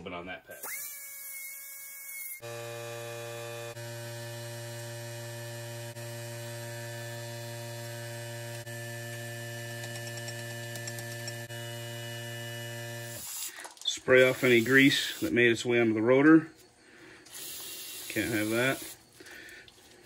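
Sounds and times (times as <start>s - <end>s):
electrical hum: 0.4s - 20.0s.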